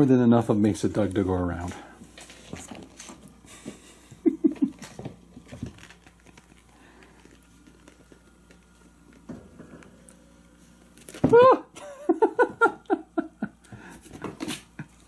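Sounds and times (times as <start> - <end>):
kittens scrabbling: 2.2 - 8.2.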